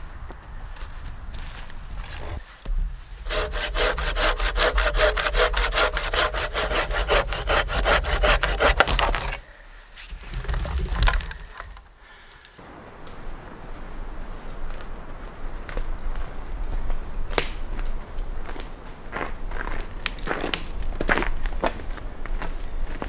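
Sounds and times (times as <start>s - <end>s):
saw cutting through log: 3.2s - 9.4s.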